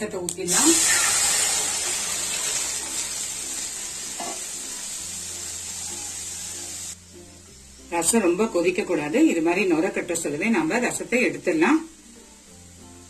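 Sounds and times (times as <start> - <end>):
loud sizzle: 0.0 - 13.0
liquid pouring into hot oil: 0.5 - 6.9.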